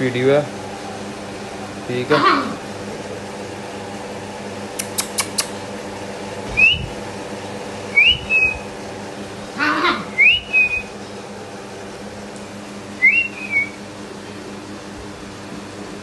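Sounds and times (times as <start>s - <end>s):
person whistling calls: 6.6s - 6.9s, 7.9s - 8.6s, 10.2s - 10.9s, 13.0s - 13.8s.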